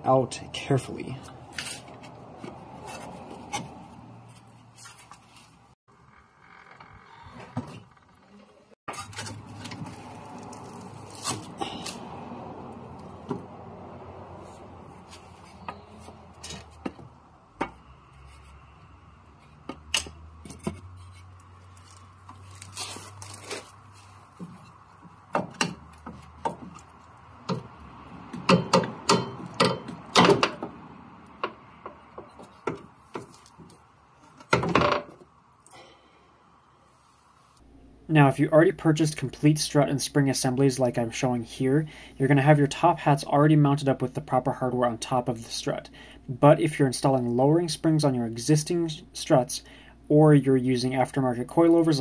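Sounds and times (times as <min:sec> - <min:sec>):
metal scrape: 0:08.9 - 0:12.0
metal knocks and clanks: 0:27.5 - 0:30.8.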